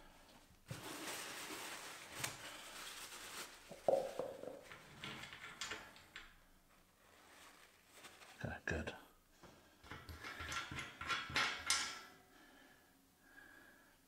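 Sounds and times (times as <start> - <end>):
rustling of handling: 0.3 - 8.6.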